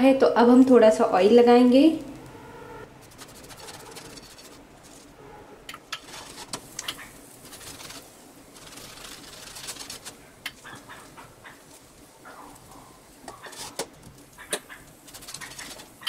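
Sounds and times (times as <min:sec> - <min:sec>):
crackling oil pops: 0:13.2 - 0:15.1.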